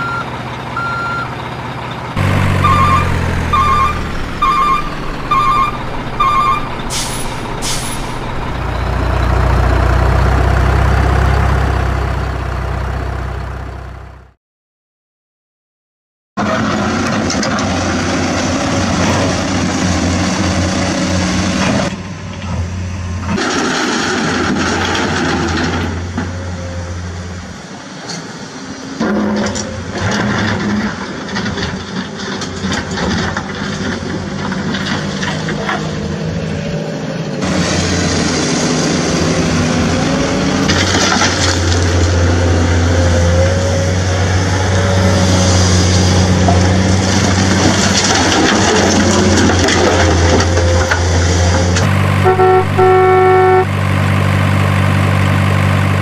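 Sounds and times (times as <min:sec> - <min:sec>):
gravel and plastic clatters: 0:29.0 - 0:36.0, 0:40.6 - 0:42.2, 0:46.4 - 0:51.9.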